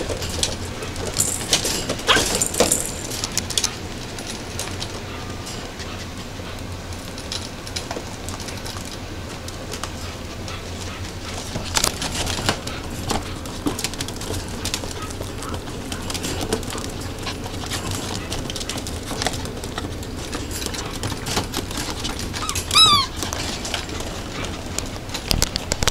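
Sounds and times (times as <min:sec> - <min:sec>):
puppies playing and scuffling: 0:00.0 - 0:25.9
high-pitched puppy cry: 0:22.3 - 0:23.2.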